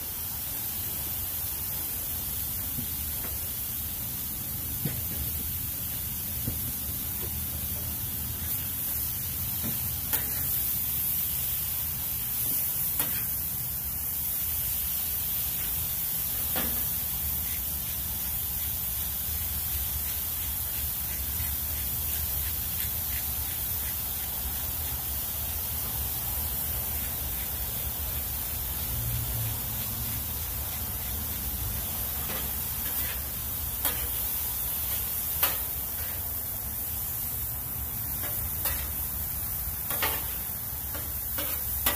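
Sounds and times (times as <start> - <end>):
food sizzling on griddle: 0.0 - 41.9
metal spatulas scraping griddle: 13.0 - 13.4, 32.1 - 36.2, 38.2 - 39.0, 39.9 - 41.9.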